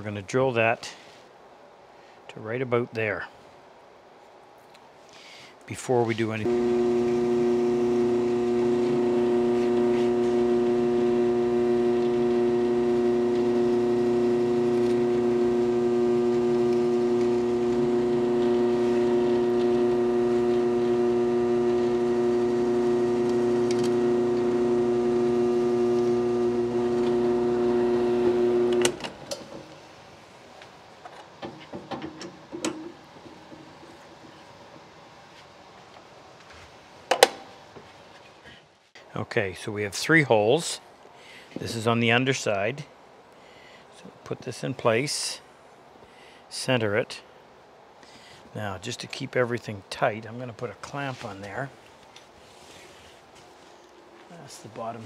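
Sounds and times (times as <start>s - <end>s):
drill press motor humming: 6.4s - 29.7s.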